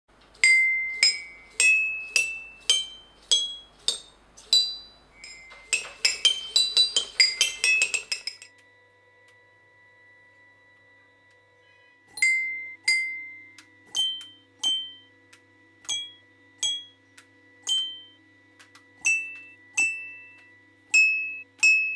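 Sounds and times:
faint steady hum: 0.1 - 21.9
toy xylophone notes: 0.4 - 8.5, 12.2 - 15.1, 15.8 - 17.0, 17.6 - 18.2, 19.0 - 21.9.

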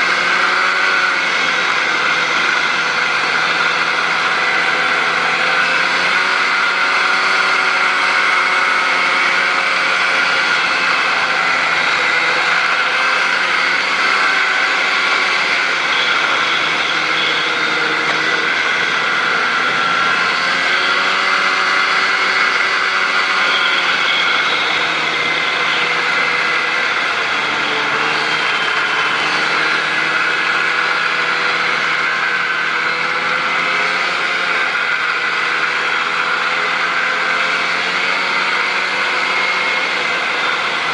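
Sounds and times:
snowmobile engine running: 0.0 - 40.9.

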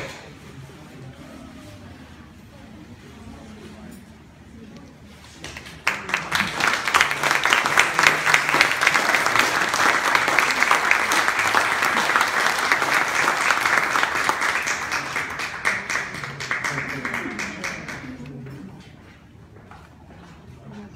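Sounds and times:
audience applauding: 5.4 - 18.4.

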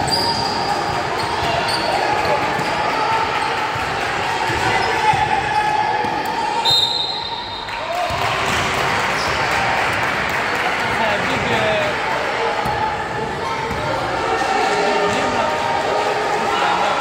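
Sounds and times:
basketballs bouncing: 0.0 - 6.4, 7.9 - 10.1, 12.5 - 15.2
murmur of voices: 0.0 - 17.0.

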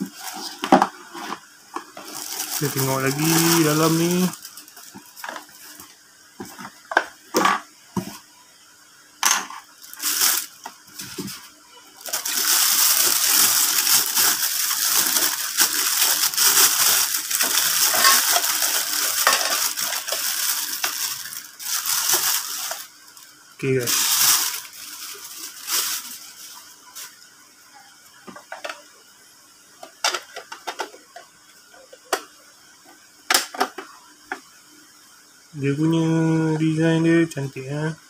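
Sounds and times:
plastic bag crinkling: 1.8 - 5.9, 9.8 - 27.2.

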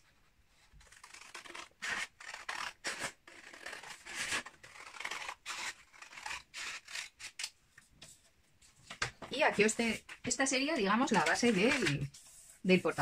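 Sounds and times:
scissors snipping paper: 0.8 - 7.6, 10.7 - 12.1.

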